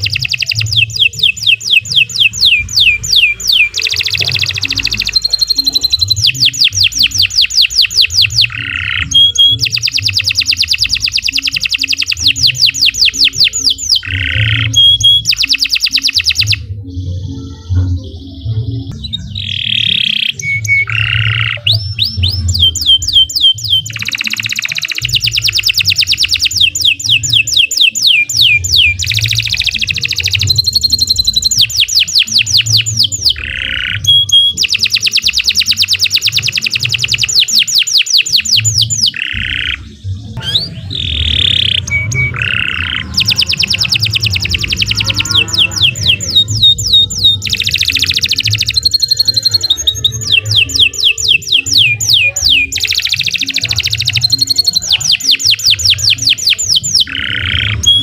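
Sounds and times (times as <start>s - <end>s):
canary singing trills: 0.0s - 58.0s.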